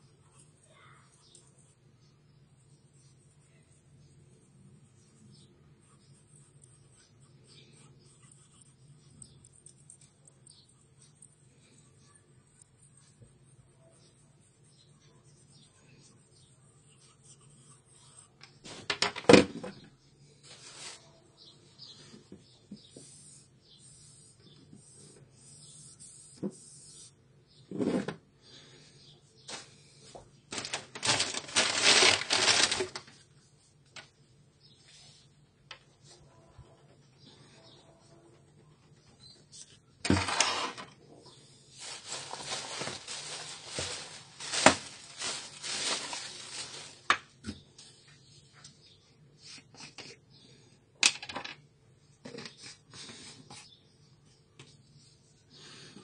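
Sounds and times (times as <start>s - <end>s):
plastic bottle rustling and scraping: 27.7s - 28.2s, 30.5s - 33.1s, 40.1s - 41.0s, 41.8s - 47.2s
cloth rubbing plastic: 30.5s - 33.2s, 41.8s - 47.1s.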